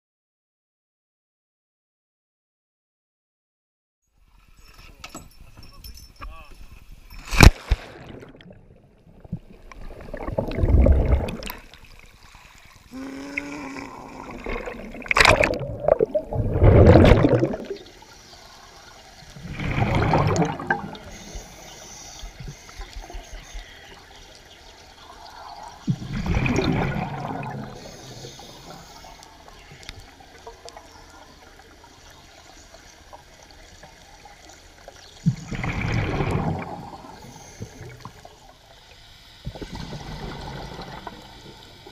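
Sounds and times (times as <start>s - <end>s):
churning bubbles: 7.4s - 18.1s, 19.3s - 21.1s, 25.0s - 28.8s, 33.9s - 38.5s, 39.4s - 41.9s
diver's breath bubbling underwater: 9.8s - 11.7s, 12.9s - 18.0s, 19.4s - 21.1s, 25.9s - 28.7s, 35.3s - 38.0s.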